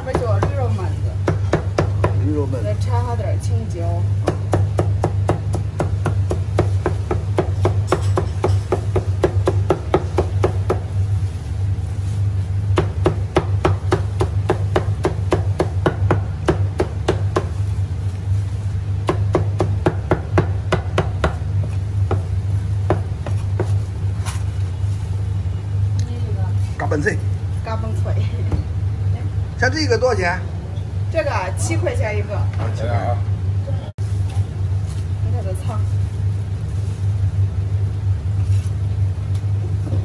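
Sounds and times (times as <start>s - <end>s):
steady low hum: 0.0s - 40.0s
cleaver chopping on wooden block: 12.8s - 17.5s.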